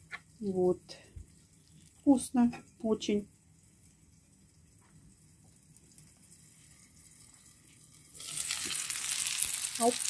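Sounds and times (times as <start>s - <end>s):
faint hiss and low hum: 0.0s - 10.0s
chops sizzling in a pan: 5.9s - 10.0s.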